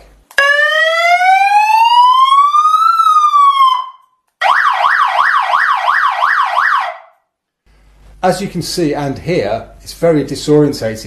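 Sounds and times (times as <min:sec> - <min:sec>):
siren fast yelp: 0:00.4 - 0:07.1
siren wailing: 0:00.4 - 0:07.2.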